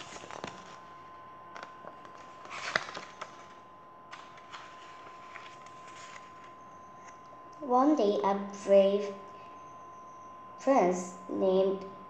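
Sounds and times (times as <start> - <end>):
paper rustles and light taps: 0.0 - 0.8, 1.6 - 6.6
book pages turning: 0.0 - 0.9, 1.5 - 7.2.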